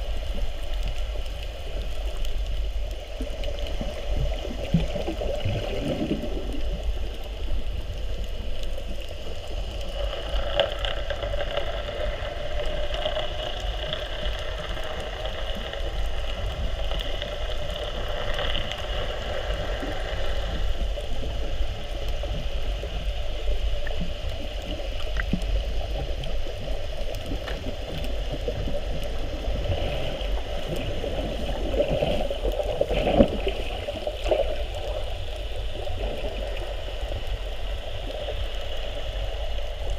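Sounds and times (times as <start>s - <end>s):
underwater rumble and gurgling: 0.0s - 39.9s
water surges: 0.0s - 39.9s.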